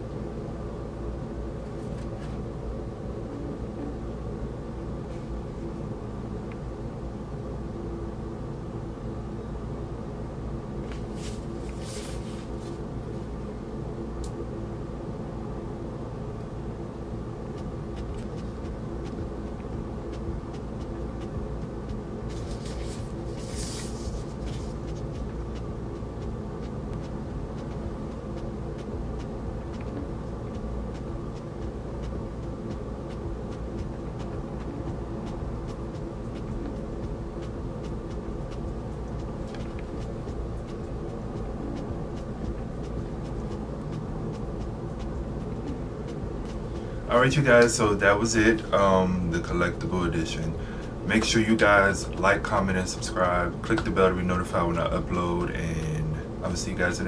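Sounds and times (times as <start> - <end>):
low room hum: 0.0 - 57.0
paper sleeve rustling: 11.0 - 12.8, 22.3 - 24.8.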